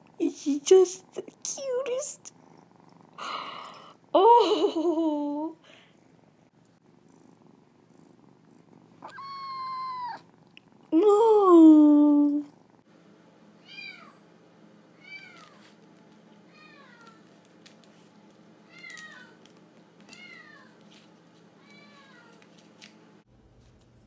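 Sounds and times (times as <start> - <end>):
kitten meowing: 9.0 - 10.2.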